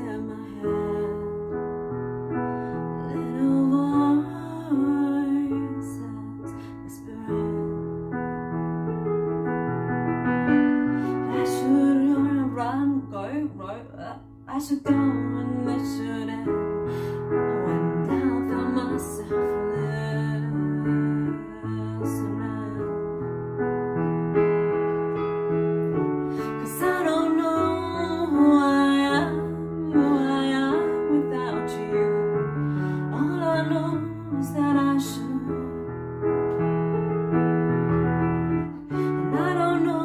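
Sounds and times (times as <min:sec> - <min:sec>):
woman singing: 0:00.0 - 0:01.8, 0:02.7 - 0:08.2, 0:10.5 - 0:23.3, 0:26.3 - 0:36.0, 0:38.8 - 0:40.0
electronic keyboard piano chords: 0:00.0 - 0:40.0.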